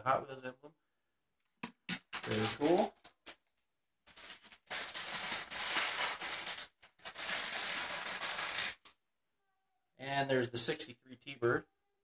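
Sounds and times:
plastic package tearing open: 0:02.0 - 0:03.4, 0:04.1 - 0:08.9.

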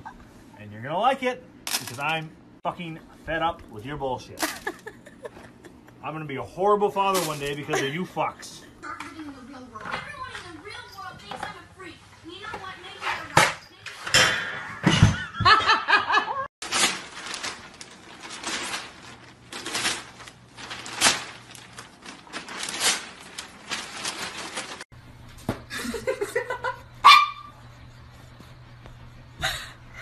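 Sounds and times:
person laughing: 0:04.4 - 0:06.0, 0:07.6 - 0:08.5, 0:25.7 - 0:26.9.

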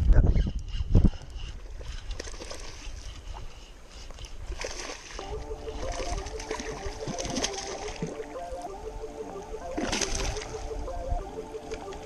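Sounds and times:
fish splashing in water: 0:04.4 - 0:08.2.

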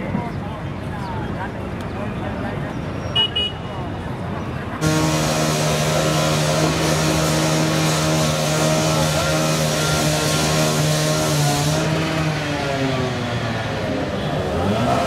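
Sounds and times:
broad rushing noise: 0:03.3 - 0:15.0
engine low hum: 0:04.8 - 0:15.0.

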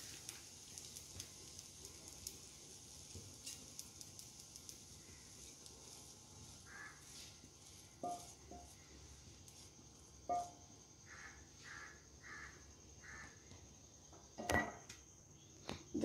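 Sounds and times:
spatula scraping frying pan: 0:05.2 - 0:09.7.

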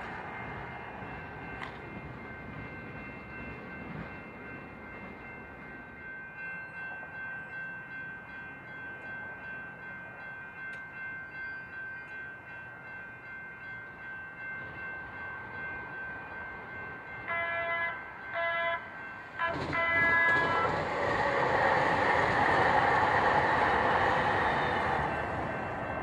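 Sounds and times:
railroad crossing bell ringing: 0:00.0 - 0:26.0
train horn blasts: 0:17.2 - 0:20.8.

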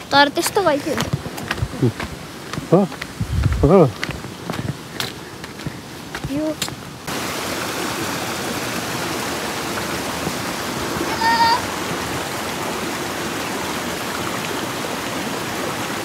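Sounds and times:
stream rushing: 0:00.0 - 0:16.0.

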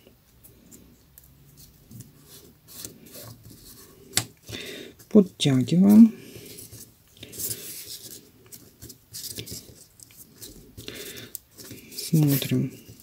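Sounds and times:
paper tubes rustling: 0:00.3 - 0:13.0.

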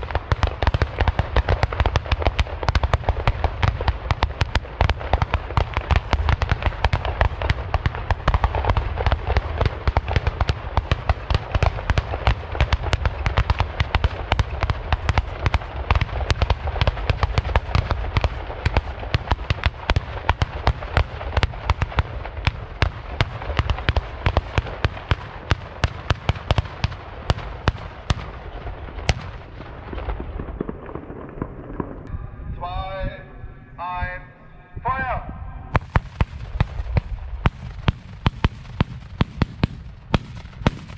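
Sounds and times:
salute guns firing: 0:35.8 - 0:40.9.

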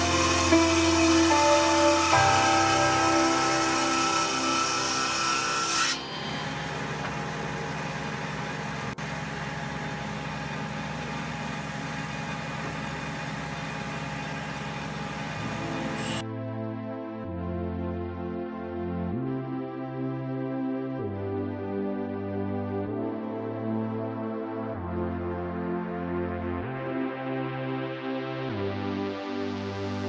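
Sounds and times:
background music: 0:00.0 - 0:07.4, 0:15.4 - 0:30.0
woodworking machine cutting wood: 0:00.0 - 0:16.2.

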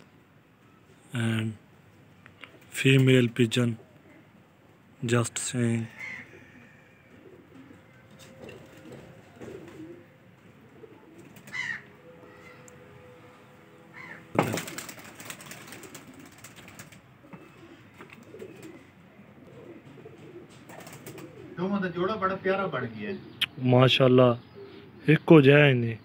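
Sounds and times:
pigeons cooing softly: 0:00.0 - 0:26.0
rustling burst: 0:14.4 - 0:17.0.

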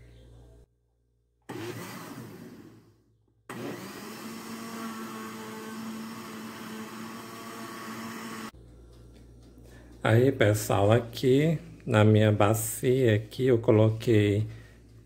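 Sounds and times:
blender running: 0:01.5 - 0:08.6.

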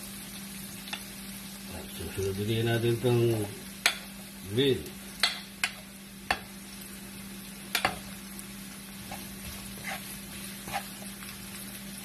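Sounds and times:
vegetables sizzling in a wok: 0:00.0 - 0:12.0
spatula stirring: 0:09.0 - 0:12.0.

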